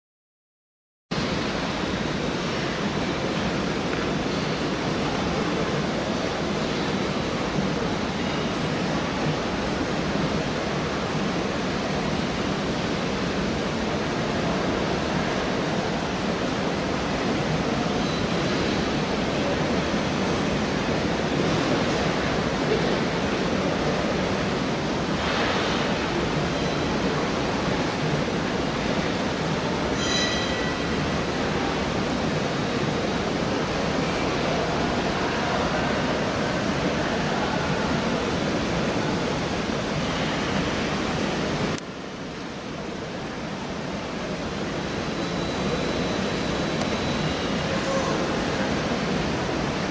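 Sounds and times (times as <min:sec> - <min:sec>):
steady rushing noise: 0:01.1 - 0:49.9
brief high-pitched tone: 0:30.0 - 0:31.0.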